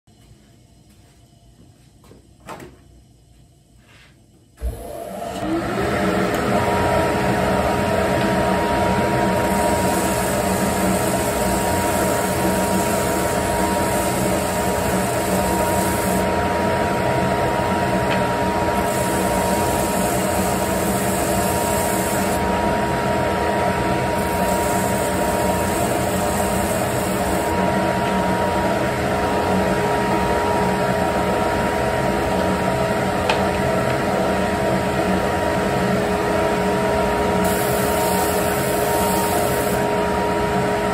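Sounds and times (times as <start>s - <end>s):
belt sander motor whine: 4.6s - 34.4s, 37.3s - 40.9s
wood sanding hiss: 9.4s - 16.2s, 18.8s - 22.4s, 24.2s - 27.5s.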